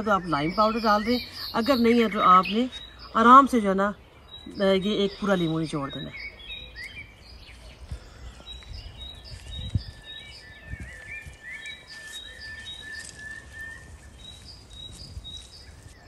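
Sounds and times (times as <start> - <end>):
birds chirping and whistling: 0.0 - 16.0.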